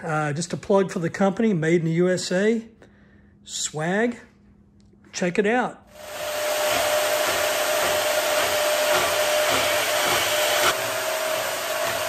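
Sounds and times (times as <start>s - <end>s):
band saw cutting steel tubing: 5.9s - 12.0s.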